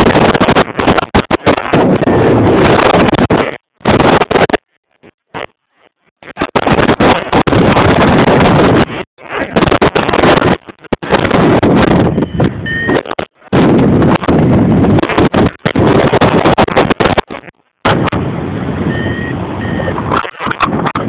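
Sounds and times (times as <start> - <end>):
wind buffeting microphone: 0.0 - 4.6, 6.3 - 21.0
faint short beeps: 12.2 - 13.0, 18.9 - 20.0.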